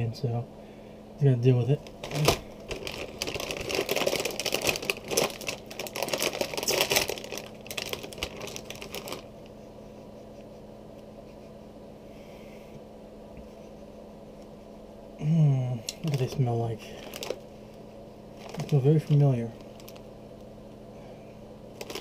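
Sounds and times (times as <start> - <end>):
quiet low hum: 0.0 - 22.0
plastic chip bag crinkling: 1.7 - 9.5, 15.9 - 17.6, 18.3 - 20.2, 21.7 - 22.0.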